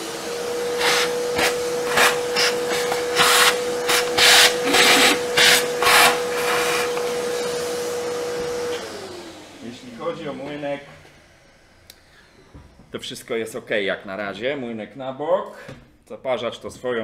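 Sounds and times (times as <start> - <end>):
vacuum nozzle sucking and rasping: 0.0 - 10.8
vacuum cleaner motor running: 0.0 - 13.5.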